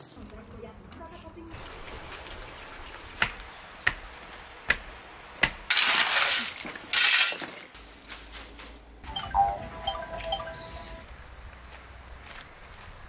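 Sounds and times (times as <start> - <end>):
shovel scraping into gravel: 5.7 - 7.7.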